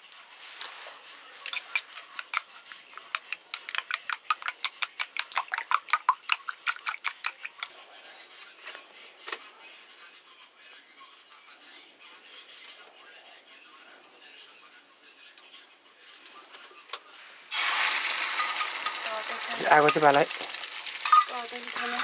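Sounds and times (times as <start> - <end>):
metal utensil clinking against dish: 18.2 - 20.1, 20.9 - 22.0.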